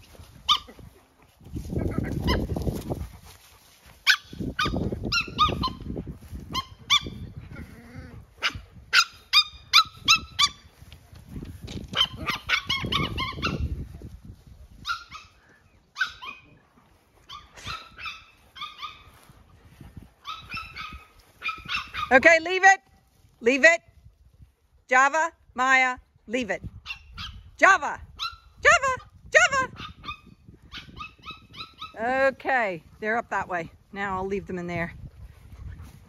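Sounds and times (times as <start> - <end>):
dogs yapping: 0.4 - 0.9, 2.0 - 2.6, 4.0 - 5.9, 6.5 - 7.7, 11.9 - 13.7, 14.8 - 16.6, 17.2 - 19.3, 20.2 - 22.2, 26.8 - 27.4, 29.7 - 32.0.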